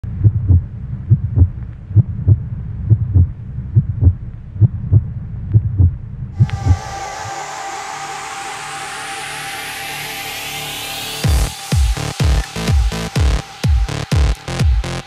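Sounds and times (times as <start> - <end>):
heartbeat double thumps: 0.0 - 7.0, 11.2 - 15.0.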